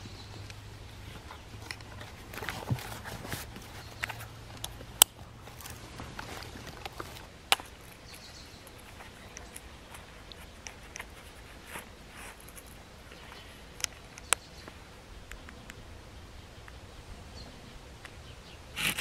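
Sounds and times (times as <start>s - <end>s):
leather belt and sheath rustling: 1.0s - 13.5s.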